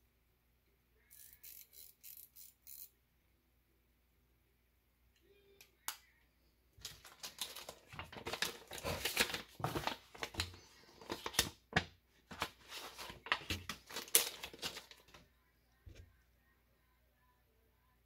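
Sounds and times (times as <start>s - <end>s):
plastic bag crinkling: 6.8s - 11.4s, 12.3s - 15.2s.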